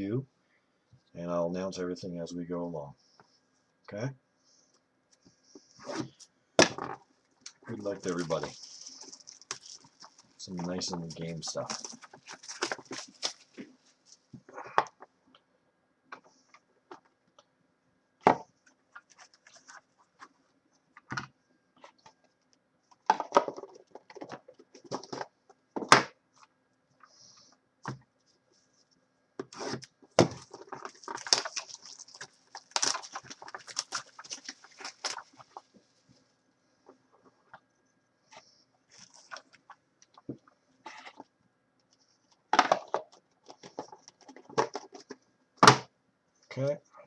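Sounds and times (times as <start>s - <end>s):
packaging rustling: 7.5s - 14.5s, 18.9s - 20.3s, 29.5s - 36.2s, 38.9s - 39.7s.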